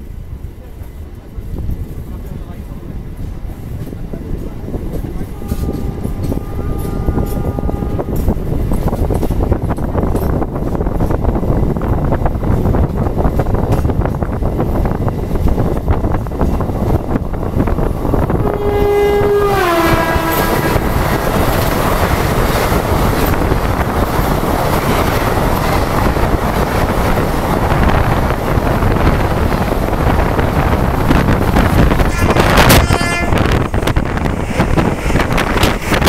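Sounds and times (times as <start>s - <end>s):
passing train coaches clattering: 0.0s - 36.0s
train wheel rumble: 0.0s - 36.0s
wind at open train door: 0.0s - 36.0s
train horn: 5.2s - 8.6s, 18.1s - 21.9s, 31.6s - 36.0s.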